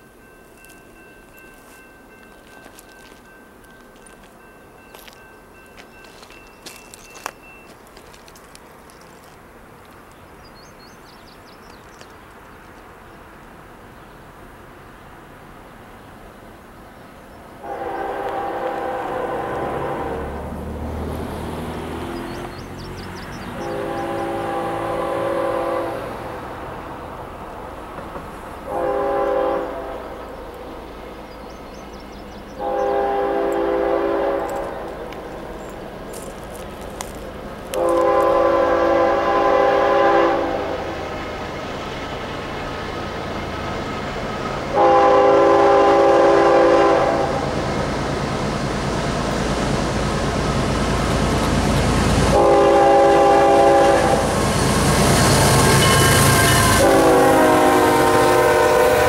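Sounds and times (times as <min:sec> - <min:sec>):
low locomotive rumble: 0:00.0 - 0:59.0
bird chirping: 0:10.0 - 0:13.3, 0:22.0 - 0:23.8, 0:31.2 - 0:33.0
distant locomotive air horn: 0:17.6 - 0:20.6, 0:23.6 - 0:26.4, 0:28.6 - 0:30.2, 0:32.6 - 0:34.9, 0:37.7 - 0:41.0, 0:44.7 - 0:47.5, 0:52.3 - 0:59.0.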